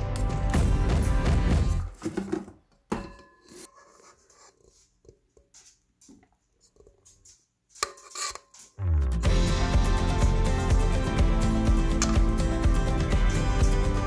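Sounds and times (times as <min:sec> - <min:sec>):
background music: 0:00.0 - 0:02.3, 0:08.8 - 0:14.0
kitchen utensils knocking and clinking: 0:02.0 - 0:03.8.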